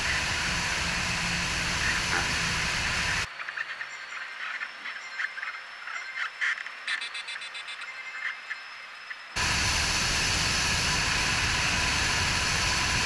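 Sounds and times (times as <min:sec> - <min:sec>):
aircraft engine noise: 0:00.0 - 0:03.3, 0:09.4 - 0:13.0
airflow rush: 0:00.0 - 0:03.3, 0:09.4 - 0:13.0.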